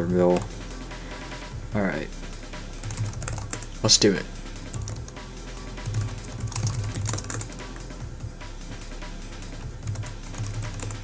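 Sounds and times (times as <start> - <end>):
background music: 0.0 - 11.0
typing on computer keyboard: 2.8 - 3.6, 5.8 - 7.6, 9.9 - 11.0.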